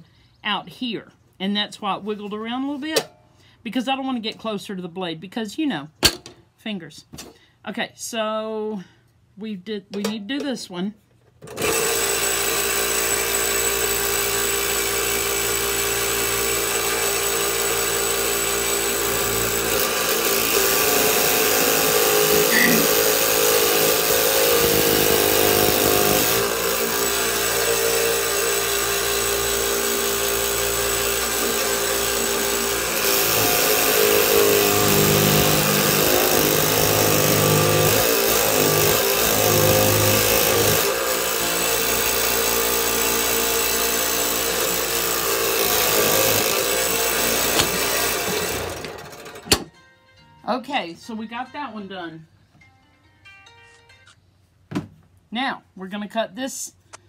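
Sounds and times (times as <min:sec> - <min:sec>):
scroll saw cutting wood: 0:11.5 - 0:49.6.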